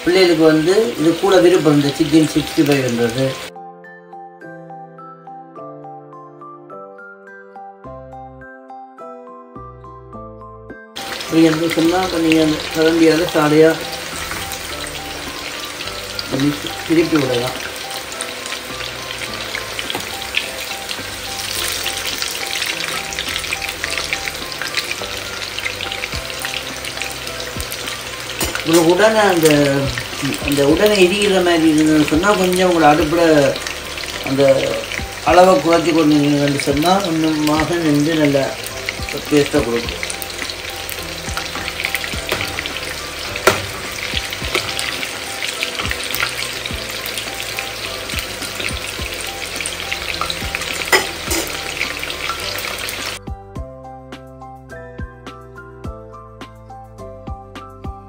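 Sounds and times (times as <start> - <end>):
chicken deep-frying in oil: 0.0 - 3.5, 11.0 - 53.2
quiet background music: 0.0 - 58.0
sharp knock: 43.4 - 43.8.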